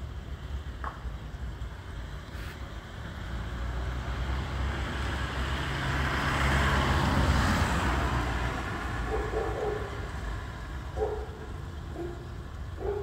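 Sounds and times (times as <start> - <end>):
vehicle passing close by: 3.2 - 13.0.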